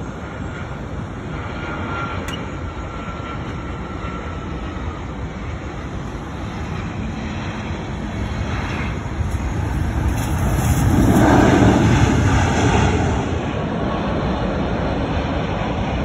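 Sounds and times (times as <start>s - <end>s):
faint high whine: 0.0s - 12.0s
jet engines roaring: 0.0s - 16.0s.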